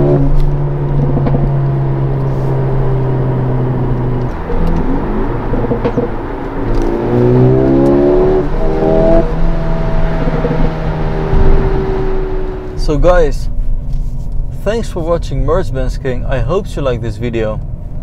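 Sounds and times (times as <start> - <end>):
car engine accelerating: 0.0 - 14.0
gear change: 0.0 - 14.8.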